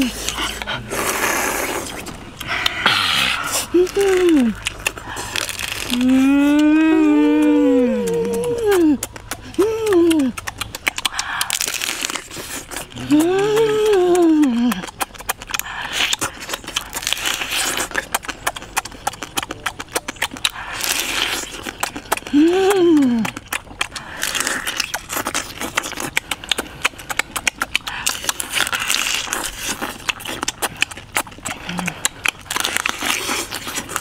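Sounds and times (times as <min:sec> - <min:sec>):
person humming mmm: 0:00.0 - 0:11.8, 0:12.7 - 0:15.0, 0:22.2 - 0:23.5, 0:31.6 - 0:32.1
person chewing wetly: 0:00.0 - 0:34.0.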